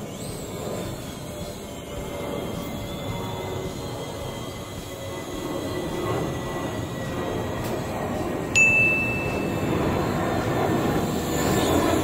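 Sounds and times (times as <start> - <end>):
toy drone propellers buzzing: 0.0 - 12.0
clear ding: 8.6 - 9.7.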